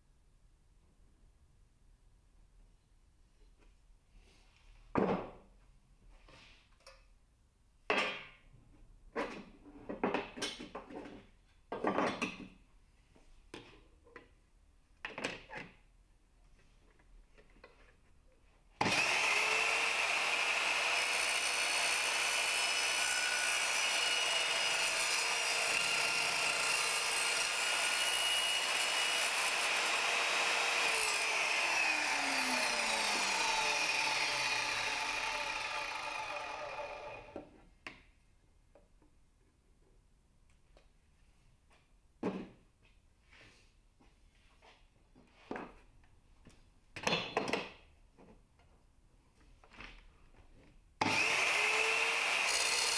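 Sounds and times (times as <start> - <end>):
mitre saw motor whining: 18.8 - 37.4, 51.0 - 52.9.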